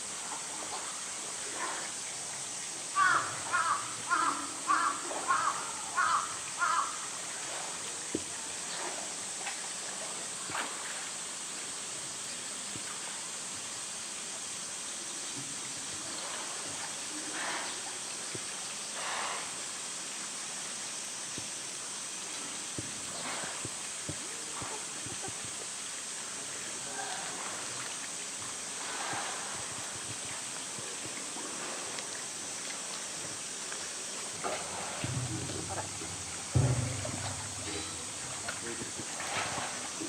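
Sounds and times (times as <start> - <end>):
outdoor background hiss: 0.0 - 40.0
bird calling: 3.0 - 7.0.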